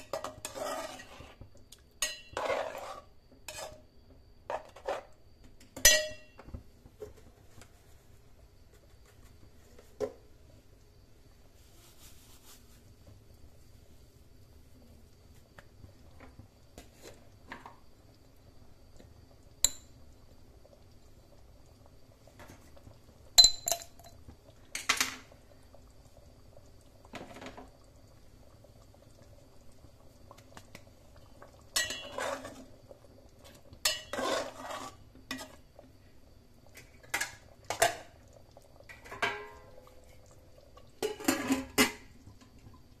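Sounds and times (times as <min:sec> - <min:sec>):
metal ladle clinking on pot: 0:02.0 - 0:02.5, 0:05.8 - 0:06.4, 0:23.4 - 0:24.1, 0:31.8 - 0:32.3.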